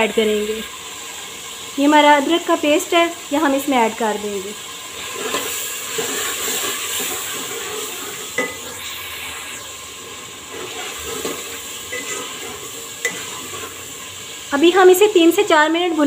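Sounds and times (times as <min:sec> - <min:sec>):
food sizzling in a pot: 0:00.0 - 0:16.0
metal ladle stirring and scraping: 0:10.5 - 0:13.8.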